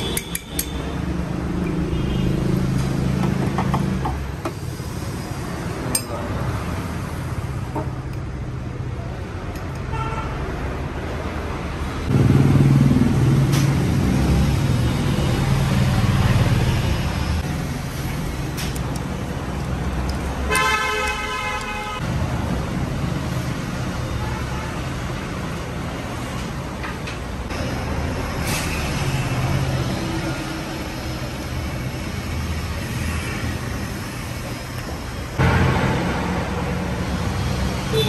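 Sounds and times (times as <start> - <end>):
horn honking: 20.5 - 22.0.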